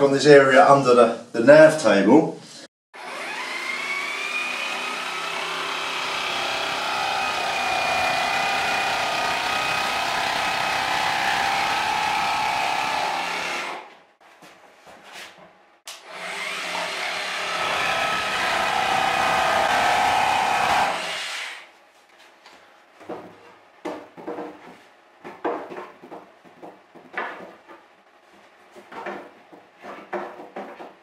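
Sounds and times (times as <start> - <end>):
jigsaw cutting plywood: 3.0 - 13.9, 16.0 - 21.7.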